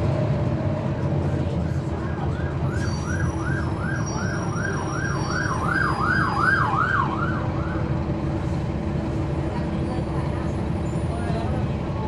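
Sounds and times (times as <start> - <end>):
bus diesel engine running: 0.0 - 12.0
siren yelping: 2.3 - 7.9.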